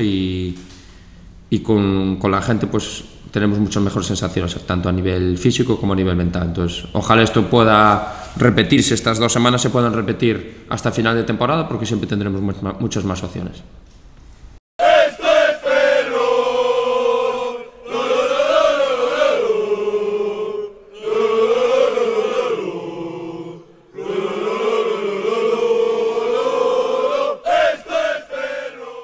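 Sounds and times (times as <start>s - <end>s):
choir singing: 14.8s - 29.0s.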